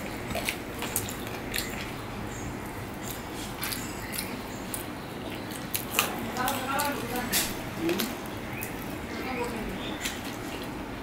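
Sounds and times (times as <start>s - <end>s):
chewing smacks and clicks: 0.0s - 2.1s, 3.0s - 9.0s.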